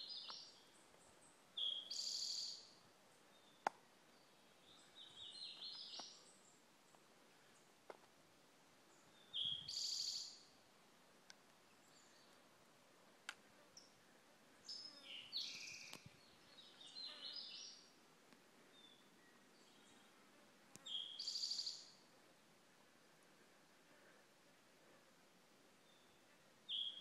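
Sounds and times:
songbirds trilling: 0.0s - 7.7s, 14.6s - 18.0s, 20.8s - 22.0s.

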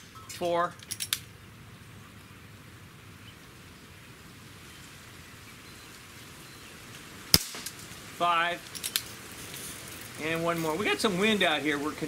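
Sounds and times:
even hiss: 4.3s - 12.0s.

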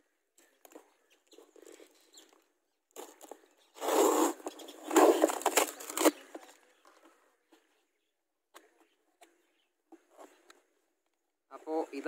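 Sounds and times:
packing tape tearing: 4.9s - 6.2s.

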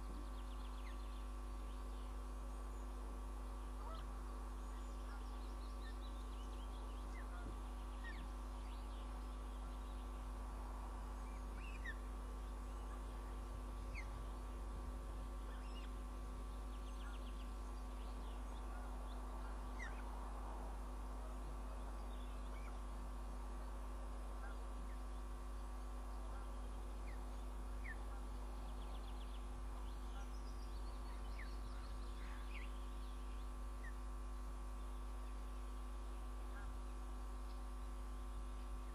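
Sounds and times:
steady electrical hum: 0.0s - 38.9s.

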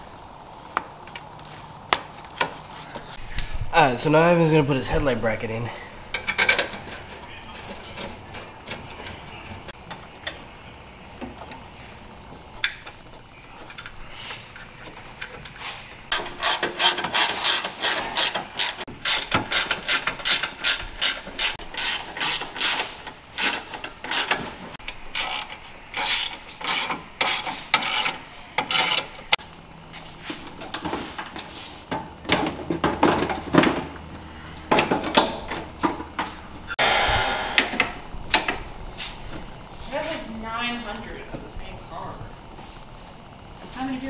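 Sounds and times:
ratchet wrench clicking: 16.1s - 29.1s.

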